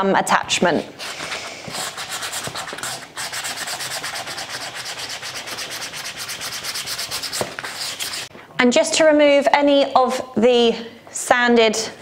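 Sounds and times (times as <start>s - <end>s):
hand sanding with sandpaper: 0.9s - 8.3s.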